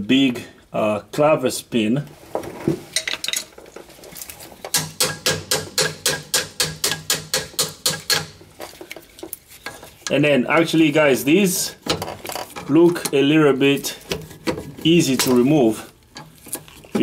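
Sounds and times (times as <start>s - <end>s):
rapid metal-on-metal tapping: 4.7s - 8.5s.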